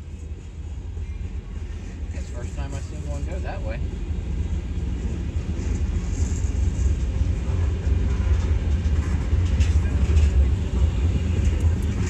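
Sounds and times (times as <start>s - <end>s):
freight train wheels rumbling: 0.0s - 12.0s.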